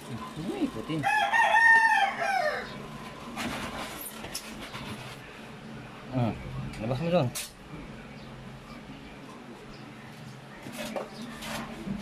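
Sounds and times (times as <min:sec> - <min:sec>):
rooster crowing: 0:01.0 - 0:02.8.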